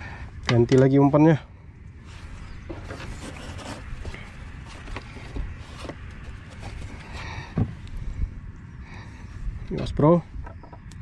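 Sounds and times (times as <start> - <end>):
steady low rumble: 0.0 - 11.0
knocks clicks and rustles in boat: 2.6 - 7.8, 9.7 - 11.0.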